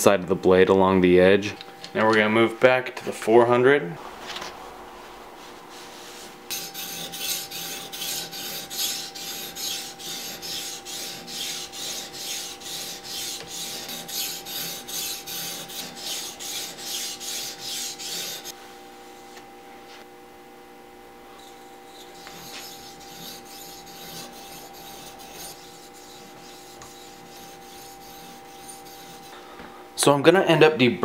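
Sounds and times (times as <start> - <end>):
sharpening stone scraping steel: 6.5 - 18.5, 21.5 - 29.3.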